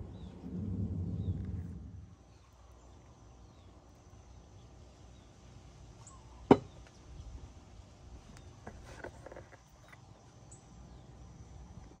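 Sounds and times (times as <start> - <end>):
low background rumble: 0.0 - 6.2.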